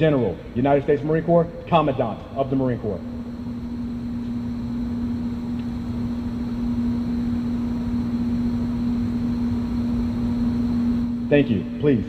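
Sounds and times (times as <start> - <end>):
steady machine hum: 0.0 - 12.0.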